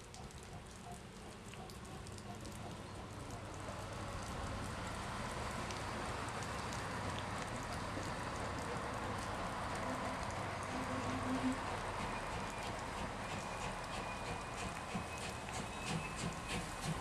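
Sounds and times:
steam locomotive hissing rumble: 10.7s - 17.0s.

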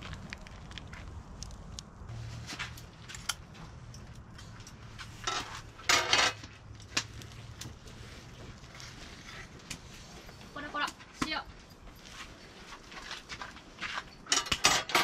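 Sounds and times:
cutlery and cookware clinking: 14.2s - 15.0s.

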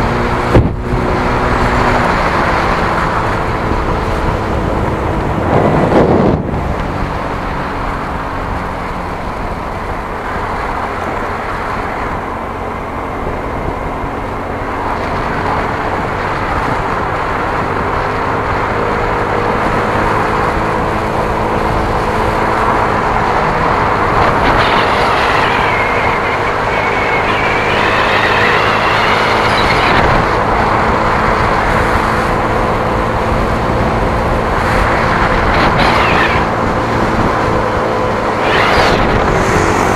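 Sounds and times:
vehicle engine and road noise: 0.0s - 39.9s
wavering high whine: 22.2s - 31.5s, 34.3s - 39.9s.

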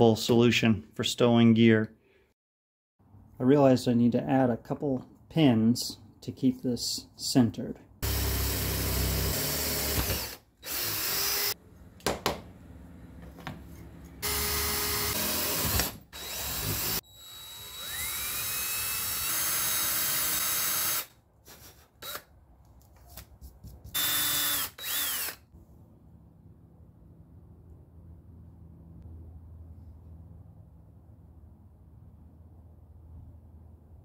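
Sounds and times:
cordless drill boring: 8.0s - 11.6s, 14.2s - 21.1s, 22.0s - 22.3s, 24.0s - 25.5s.

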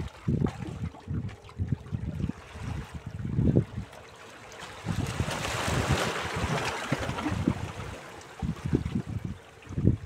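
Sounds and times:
waves lapping against rocks: 0.0s - 10.0s
wave washing over rocks: 4.7s - 9.2s.

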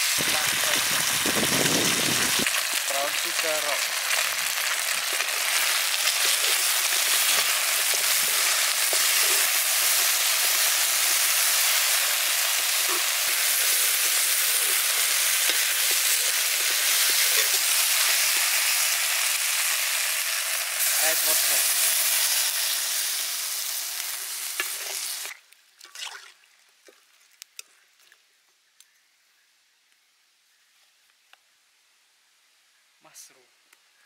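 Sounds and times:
food sizzling in hot oil: 0.0s - 25.4s
metal spoon stirring in wok: 5.0s - 18.5s.

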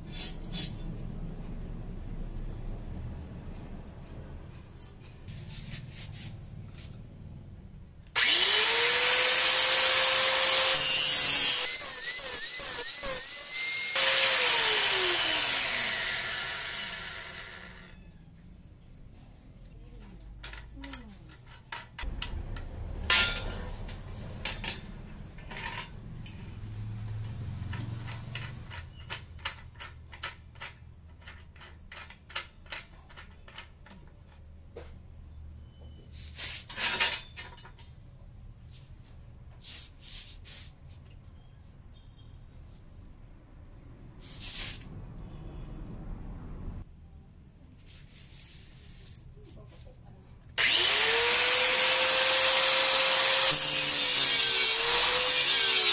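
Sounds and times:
angle grinder cutting steel: 8.2s - 17.9s, 50.6s - 55.9s.

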